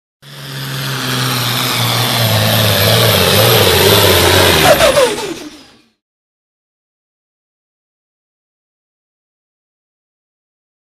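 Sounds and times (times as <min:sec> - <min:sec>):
diesel engine running hard: 0:00.2 - 0:06.0.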